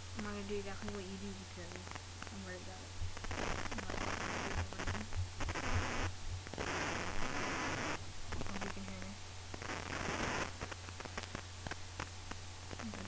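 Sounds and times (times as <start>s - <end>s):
bursts of static hissing: 0.0s - 13.0s
low electrical hum: 0.0s - 13.0s.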